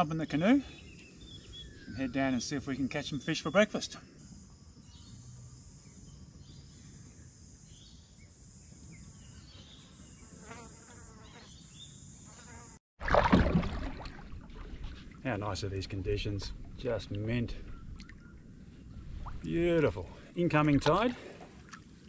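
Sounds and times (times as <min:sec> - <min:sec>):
insects droning: 0:00.0 - 0:12.8.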